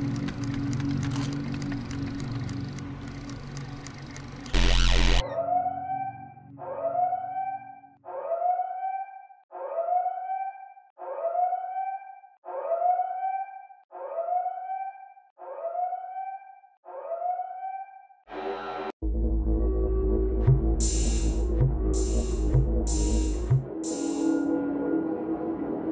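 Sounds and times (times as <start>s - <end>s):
siren wailing: 4.5s - 18.0s.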